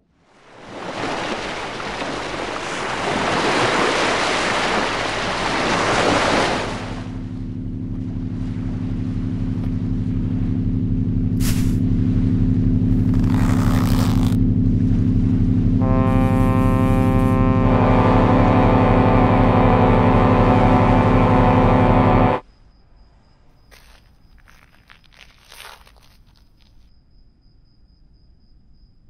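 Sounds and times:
low drone of held tones: 0:06.6 - 0:22.4
hiss: 0:11.4 - 0:11.8.

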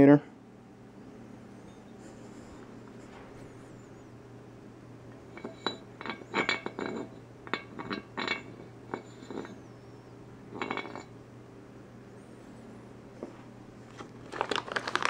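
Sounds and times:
metal piston clinking on gasket: 0:05.3 - 0:09.6.

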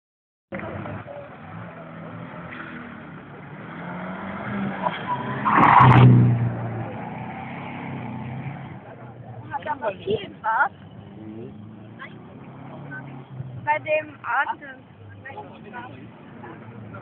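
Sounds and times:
car engine revving: 0:00.5 - 0:09.2, 0:10.8 - 0:13.7.

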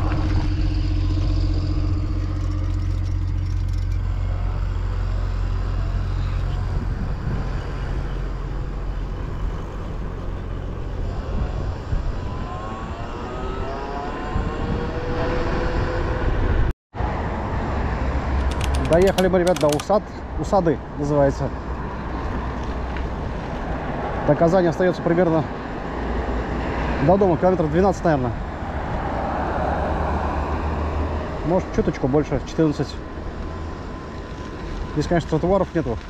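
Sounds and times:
pitched whine gliding: 0:00.0 - 0:16.7
wind rumble: 0:00.0 - 0:24.3
road noise: 0:00.0 - 0:36.0.

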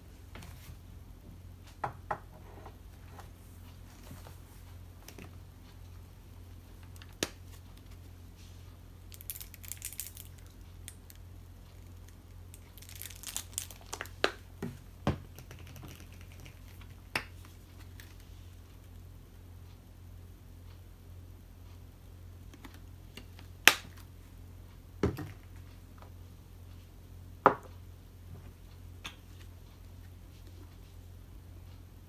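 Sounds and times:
low steady hum: 0:00.0 - 0:32.0
plastic crinkling: 0:09.1 - 0:11.2, 0:11.8 - 0:14.4.

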